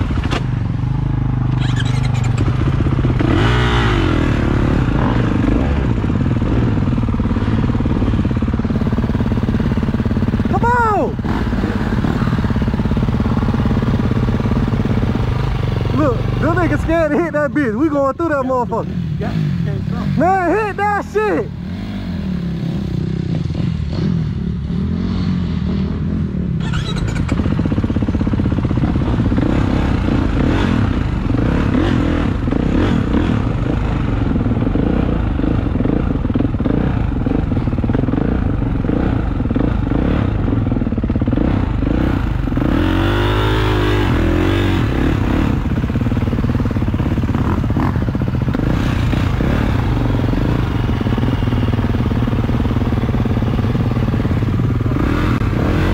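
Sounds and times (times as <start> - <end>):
dirt bike engine revving: 0.0 - 55.9.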